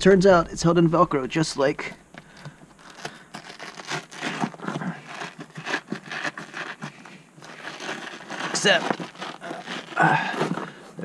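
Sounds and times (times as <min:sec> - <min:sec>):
velcro ripping apart: 0:02.4 - 0:10.4.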